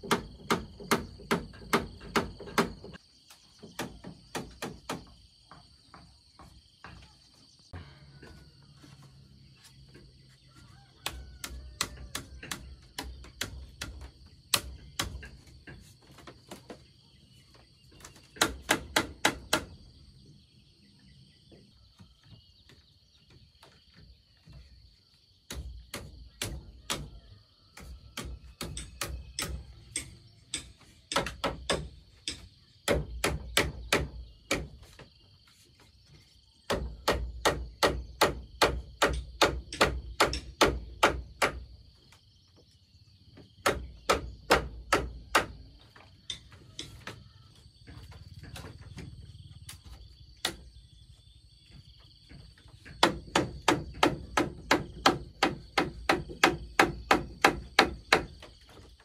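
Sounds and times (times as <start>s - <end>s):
high insect trill: 0.0s - 59.0s
hand tool striking: 28.2s - 34.6s.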